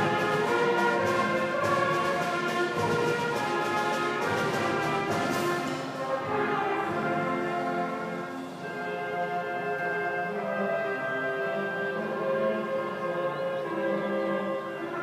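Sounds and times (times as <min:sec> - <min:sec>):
percussion strokes: 0:00.0 - 0:09.0
brass and winds holding chords: 0:00.0 - 0:15.0.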